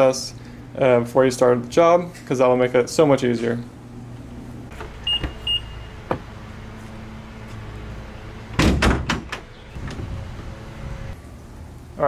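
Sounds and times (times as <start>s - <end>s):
loud knocks and rattles: 8.6s - 10.2s.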